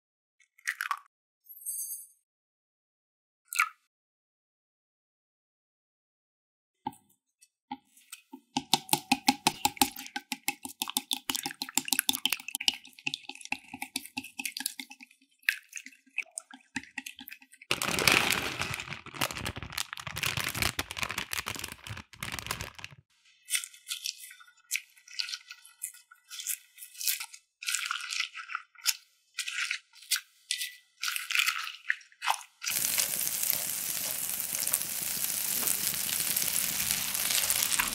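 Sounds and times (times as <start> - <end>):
chopsticks beating eggs in glass bowl: 8.6 - 17.6
cabbage rustling: 17.7 - 23.0, 32.7 - 37.9.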